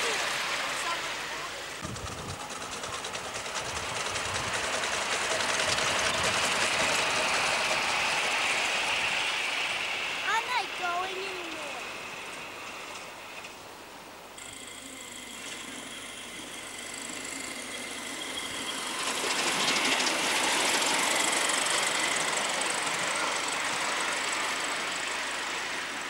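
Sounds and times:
miniature steam train running past: 0.0 - 26.0.

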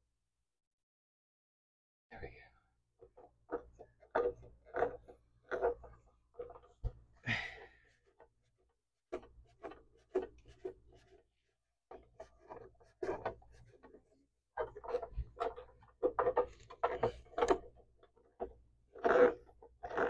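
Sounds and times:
knocks and scrapes on metal: 3.0 - 7.1, 9.1 - 11.2, 11.9 - 20.0.

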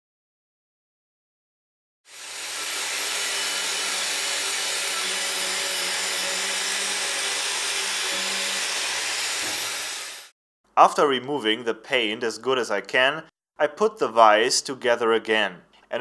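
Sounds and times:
angle grinder grinding steel: 2.1 - 10.3.

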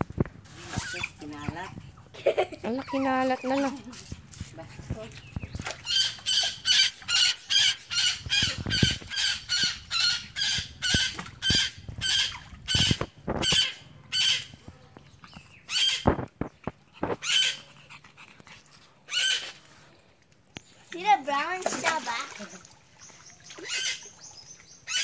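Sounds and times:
otters chirping squeaks: 5.2 - 14.6, 15.3 - 17.7, 23.3 - 25.0.

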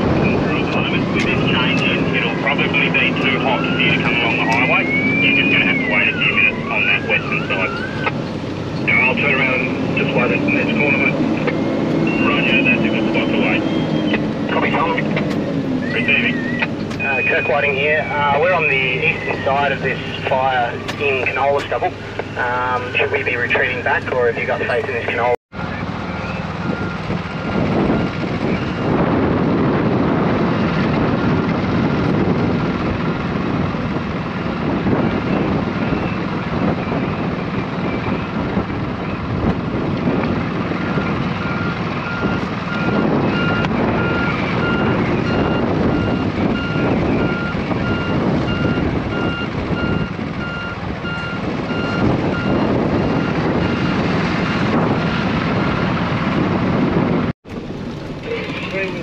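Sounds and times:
strong wind buffeting microphone: 0.0 - 59.0
electronic warning beeper: 0.2 - 8.1, 8.9 - 15.2, 15.8 - 25.3.

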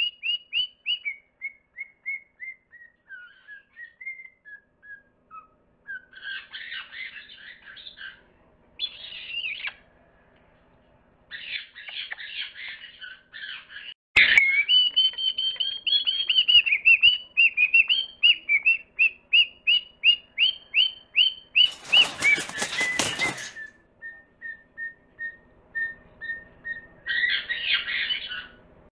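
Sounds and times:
loud rustling: 21.6 - 23.7.

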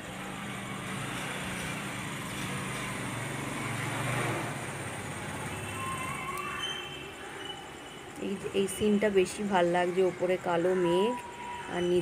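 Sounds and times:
motor vehicle passing: 0.0 - 5.8
urban traffic: 0.0 - 12.0.

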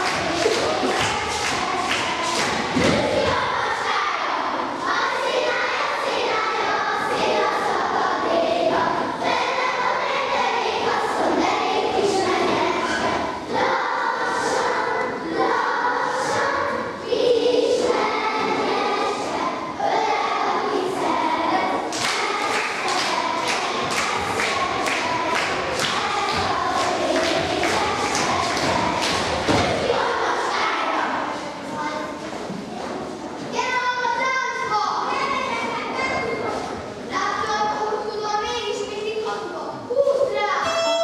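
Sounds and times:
children singing: 0.0 - 32.2.

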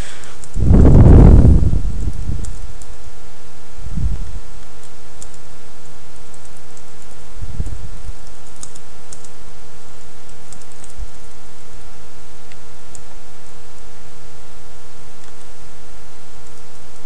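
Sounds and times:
steady hum: 0.0 - 17.0
computer keyboard typing: 8.2 - 9.4, 10.2 - 11.4.

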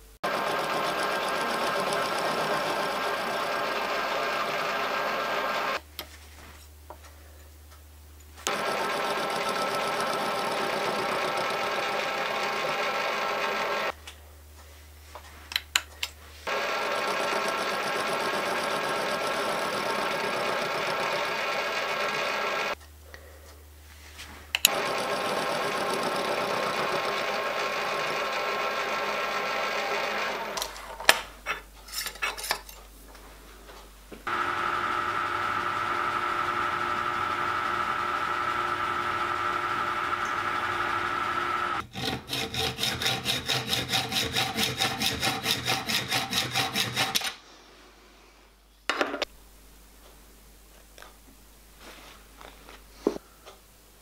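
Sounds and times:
milling machine cutting metal: 0.2 - 5.8, 16.5 - 22.8, 34.3 - 47.4.

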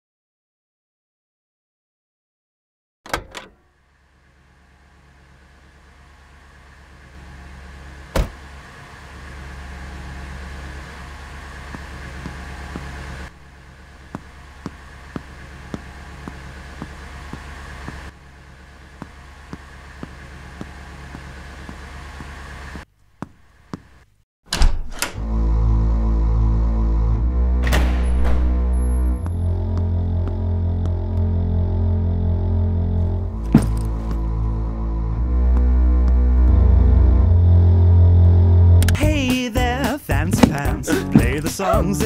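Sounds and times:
loud low drone: 4.5 - 22.7, 25.2 - 39.2
car door shutting: 8.1 - 8.6, 27.6 - 29.3, 33.4 - 34.2, 40.2 - 41.5
footsteps: 11.6 - 24.0, 33.4 - 34.4, 40.2 - 42.0
low rumble: 25.2 - 39.3.

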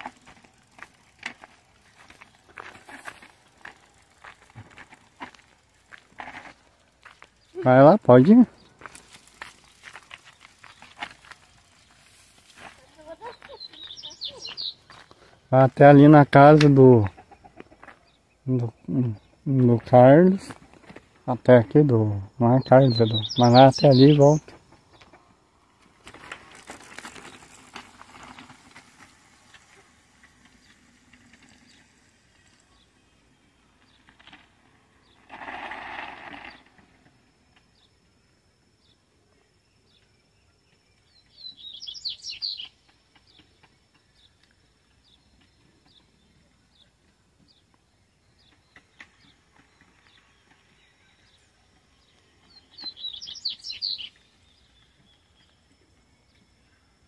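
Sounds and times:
bird chirping: 12.9 - 15.0, 22.3 - 25.2, 39.6 - 57.0.

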